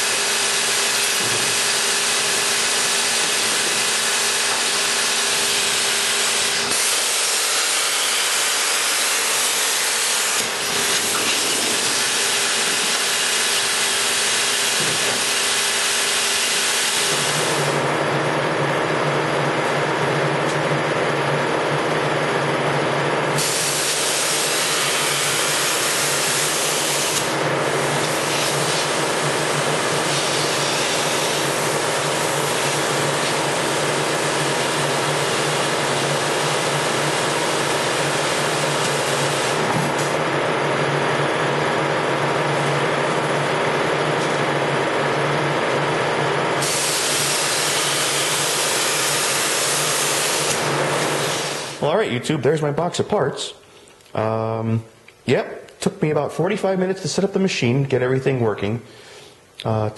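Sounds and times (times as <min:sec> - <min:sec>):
plasma cutter hissing: 0:00.0 - 0:17.8, 0:23.4 - 0:29.2, 0:30.0 - 0:40.1, 0:46.6 - 0:51.8.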